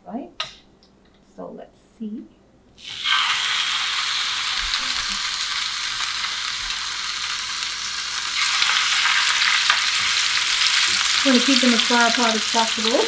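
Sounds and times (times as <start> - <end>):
fish sizzling in a frying pan: 2.8 - 13.0.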